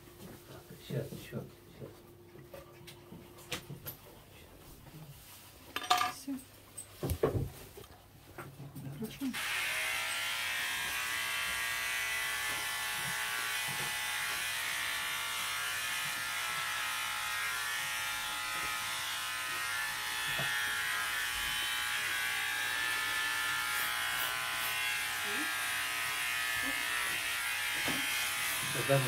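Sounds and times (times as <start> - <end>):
small electric motor buzzing: 9.3 - 29.0.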